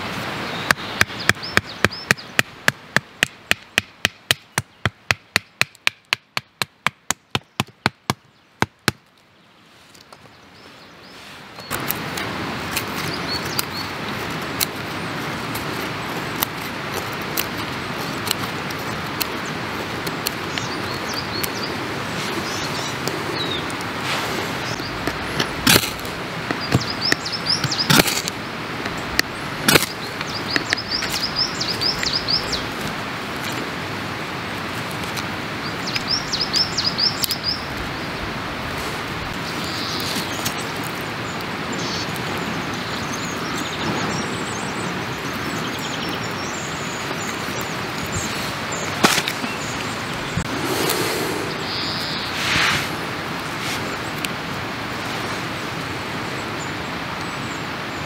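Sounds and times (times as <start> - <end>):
rushing background noise: 11.0 - 58.0
songbird trilling: 45.6 - 52.9.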